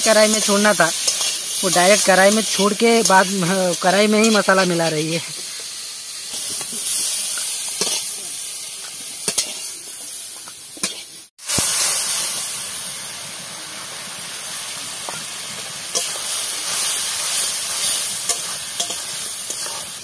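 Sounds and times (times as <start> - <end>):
food sizzling in hot oil: 0.0 - 20.0
metal spatula scraping pan: 17.7 - 20.0.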